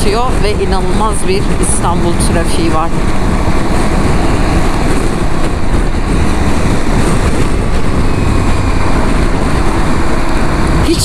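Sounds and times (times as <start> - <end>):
motorcycle engine running: 0.0 - 11.0
wind rush while riding: 0.0 - 11.0.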